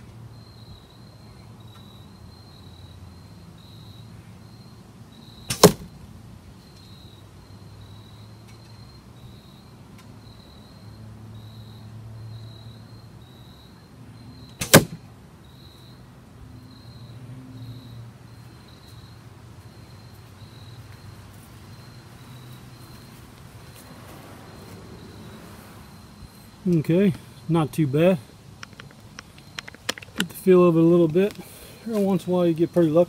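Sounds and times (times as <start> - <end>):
arrow hitting foam target: 5.5 - 5.9, 14.6 - 15.0.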